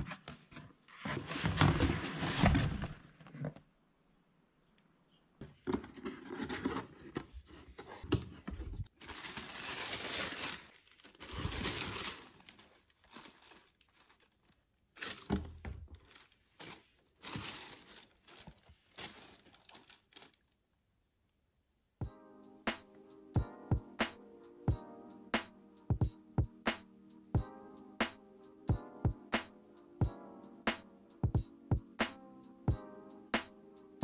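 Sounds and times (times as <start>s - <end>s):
tissue paper rustling in box: 0.0s - 3.2s, 8.9s - 15.3s, 16.0s - 20.4s.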